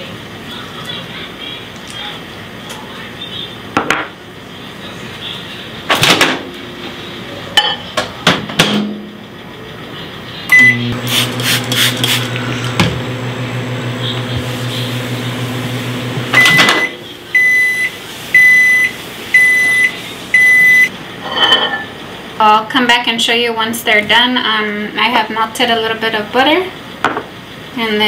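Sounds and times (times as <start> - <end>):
microwave humming: 0.0 - 28.0
microwave beeps: 10.5 - 11.0, 13.4 - 21.0.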